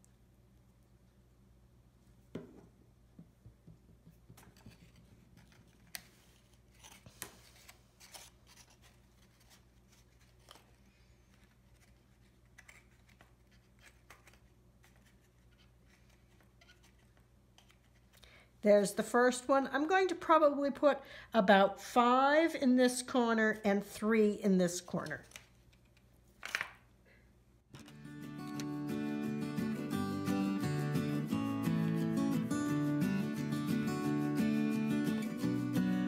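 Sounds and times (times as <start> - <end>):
paper clicks and rustles: 4.4 - 18.2.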